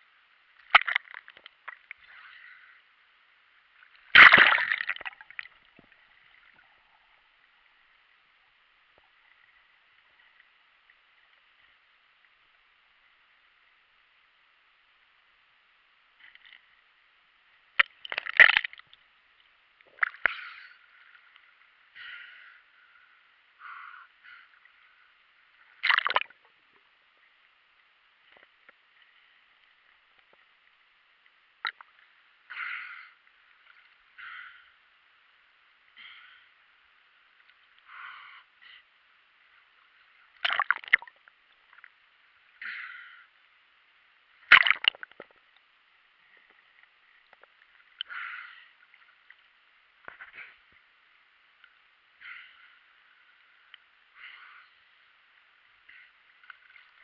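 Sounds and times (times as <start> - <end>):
muffled water splashing: 0.4 - 12.6, 16.4 - 23.5, 24.4 - 32.5, 43.4 - 57.0.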